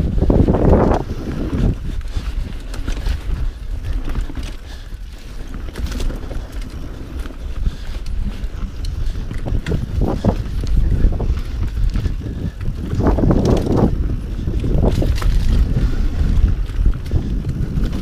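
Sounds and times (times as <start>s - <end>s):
bike rattling and knocking: 0.0s - 18.0s
tyre noise on dirt: 0.0s - 18.0s
wind buffeting microphone: 0.0s - 18.0s.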